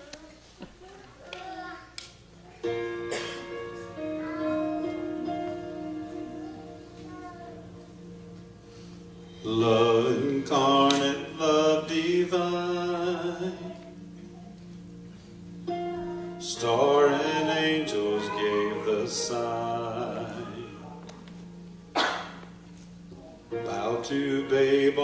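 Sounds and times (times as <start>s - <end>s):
soft instrumental chord: 2.4s - 25.0s
amplified person singing: 9.3s - 14.1s, 15.8s - 21.4s, 23.3s - 25.0s.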